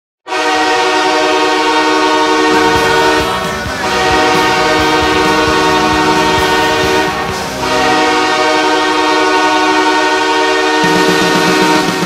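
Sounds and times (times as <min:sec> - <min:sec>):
arena goal horn blasting: 0:00.3 - 0:12.0
thumping music beat: 0:02.4 - 0:09.1.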